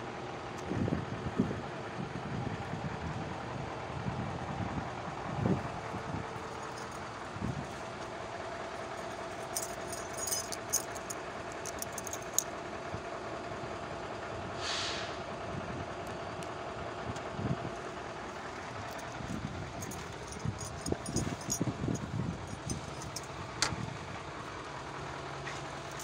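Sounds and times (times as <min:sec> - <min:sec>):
light clicks and rattles: 0:06.4 - 0:08.1, 0:08.7 - 0:12.6, 0:18.4 - 0:24.1, 0:24.8 - 0:26.0
short hiss: 0:14.6 - 0:15.2.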